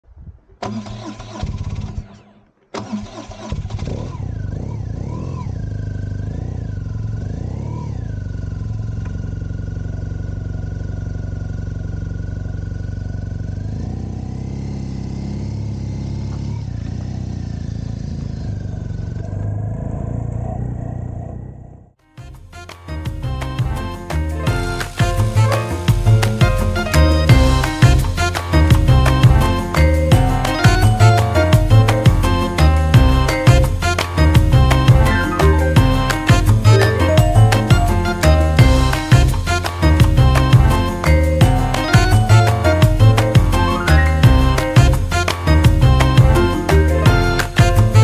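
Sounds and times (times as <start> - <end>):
vehicle engine starting and revving: 0.6 - 22.0.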